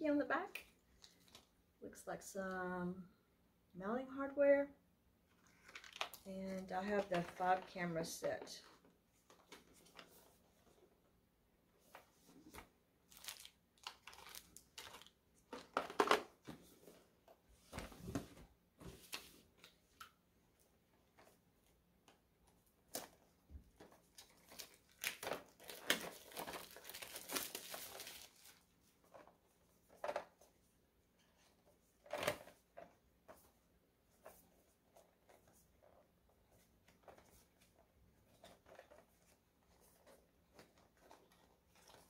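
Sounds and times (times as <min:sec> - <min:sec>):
packaging rustling and crinkling: 0:05.3 - 0:06.2, 0:12.0 - 0:16.2, 0:22.9 - 0:30.3, 0:36.8 - 0:42.0.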